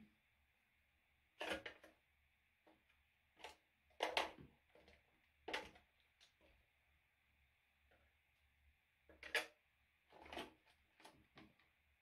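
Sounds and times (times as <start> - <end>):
small containers knocking and clattering: 1.4 - 2.0, 2.6 - 6.6, 9.1 - 11.7.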